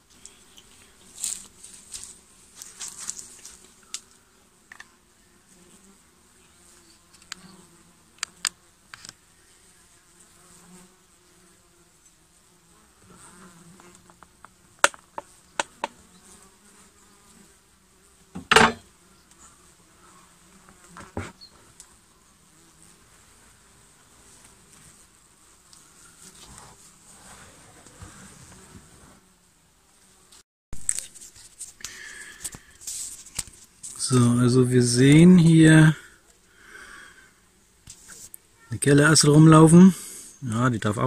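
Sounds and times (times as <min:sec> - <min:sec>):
honeybees buzzing: 0:00.0 - 0:30.4, 0:31.1 - 0:41.0
wooden clicks and knocks: 0:14.8 - 0:15.9, 0:18.4 - 0:18.8.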